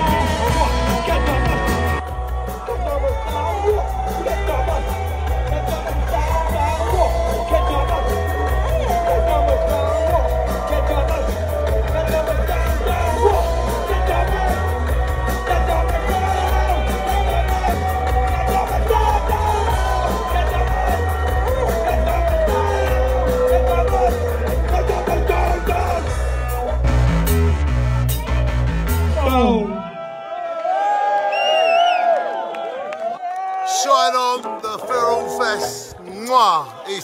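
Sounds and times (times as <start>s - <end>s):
person singing: 0.0s - 26.2s
heavy bass: 0.0s - 30.0s.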